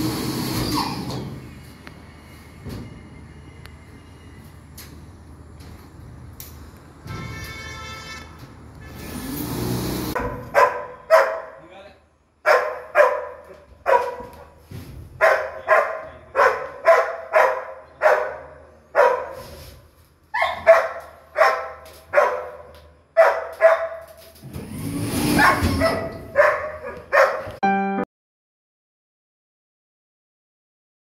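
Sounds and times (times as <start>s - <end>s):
dog barking: 10.2s - 11.6s, 12.4s - 14.6s, 15.2s - 19.5s, 20.4s - 24.2s, 25.3s - 27.6s.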